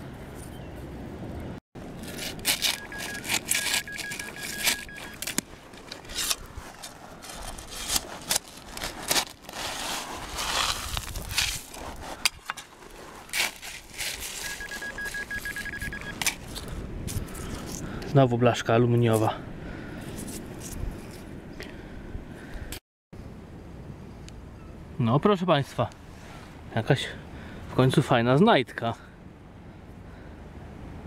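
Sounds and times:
metal detector rapid beeps: 2.7 - 5.3, 14.3 - 16.2
trowel scraping wet sand: 6.0 - 15.7
pebbles crunching and clattering: 6.6 - 16.0.

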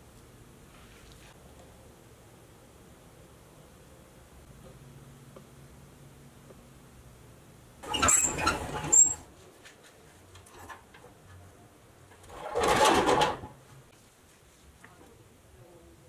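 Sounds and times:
metal toy truck scraping and rattling: 7.8 - 9.2, 12.2 - 13.6.

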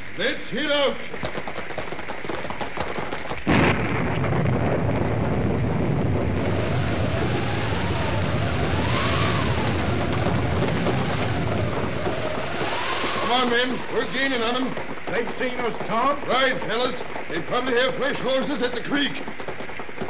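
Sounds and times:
clattering hoofbeat effects: 0.0 - 3.9, 7.6 - 20.0
steady rushing rumble: 3.4 - 20.0
staged thunder crash: 3.5 - 15.7
howl of wind machine: 5.6 - 14.8.

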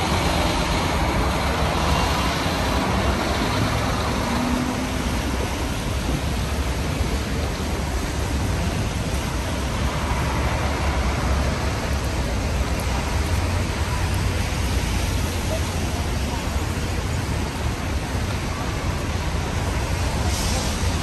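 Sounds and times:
rain hissing: 0.0 - 21.0
traffic rumble: 0.0 - 21.0.

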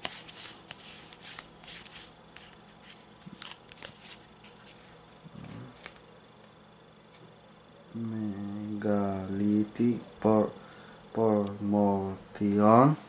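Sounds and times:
cards swishing and clicking: 0.0 - 4.8.

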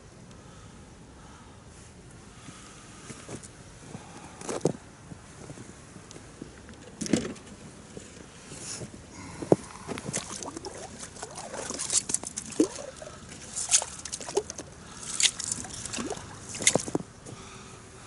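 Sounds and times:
ice scoop scraping and splashing: 10.1 - 16.9.

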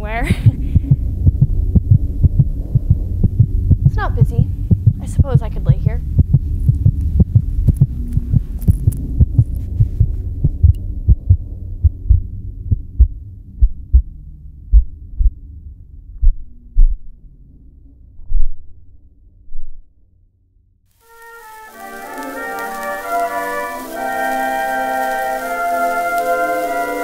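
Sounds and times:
heartbeat thumps: 0.0 - 17.2
low hum: 0.0 - 27.0.

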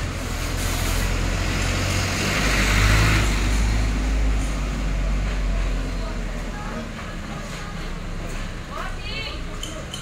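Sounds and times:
vehicle engine rumble passing: 0.0 - 8.7.

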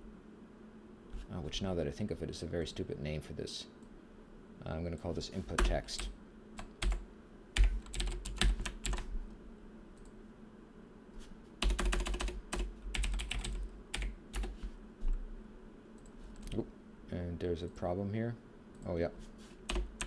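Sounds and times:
typing on computer keyboard: 5.6 - 7.0, 7.6 - 9.1, 11.6 - 14.6, 19.7 - 20.0.

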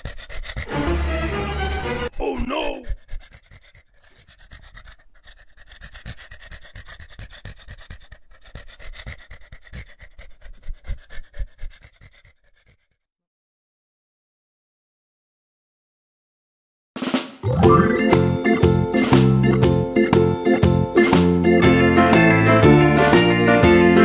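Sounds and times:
rapid dog-like panting: 0.0 - 13.1.

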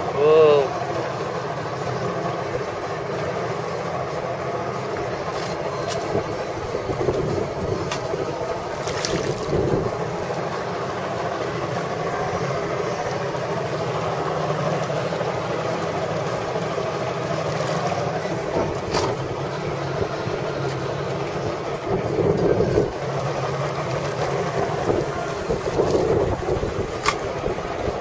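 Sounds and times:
water sloshing against boat: 0.0 - 28.0
wind on microphone: 6.1 - 10.2, 21.4 - 23.0, 24.5 - 28.0.

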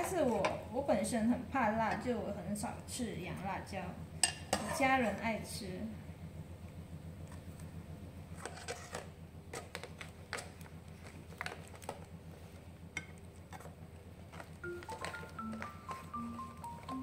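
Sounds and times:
low steady hum: 0.0 - 17.0
metal spoon scraping plastic tray: 8.4 - 9.8.

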